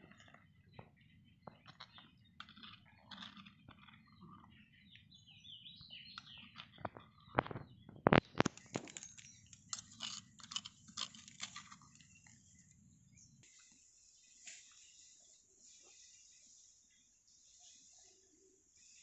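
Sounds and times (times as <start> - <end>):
metal spoon scraping stone mortar: 1.7 - 4.6, 8.5 - 12.4.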